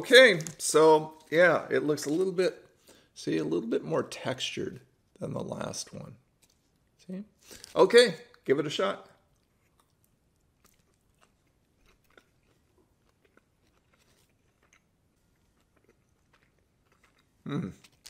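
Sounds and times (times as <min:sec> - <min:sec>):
faint chewing clicks: 0:09.2 - 0:18.0.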